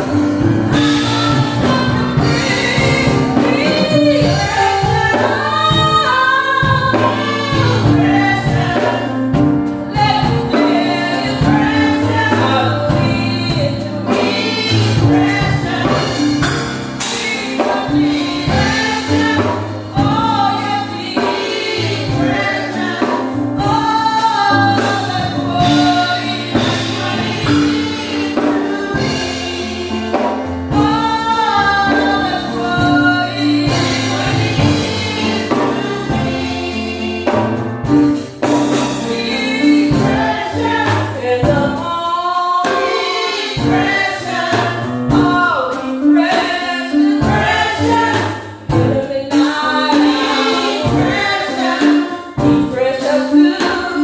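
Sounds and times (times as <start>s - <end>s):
choir singing: 0.0s - 9.3s, 9.9s - 37.7s, 38.6s - 54.0s
sustained instrumental backing: 0.0s - 54.0s
woman singing into a microphone: 0.8s - 9.3s, 9.9s - 16.4s, 39.1s - 54.0s.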